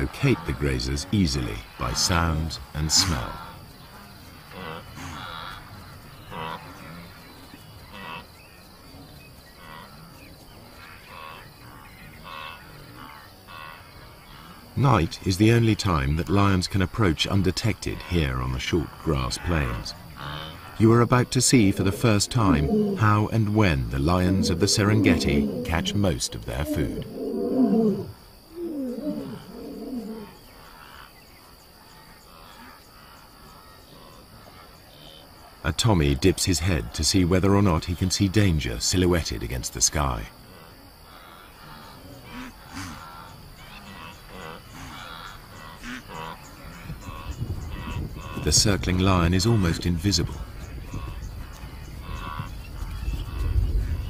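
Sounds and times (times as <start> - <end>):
grazing animals calling: 0.0 - 54.0
high insect trill: 0.0 - 54.0
lion roaring and grunting: 21.6 - 30.3.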